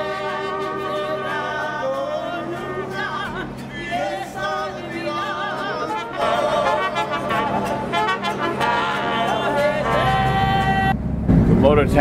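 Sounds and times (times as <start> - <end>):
mariachi band playing: 0.0 - 11.0.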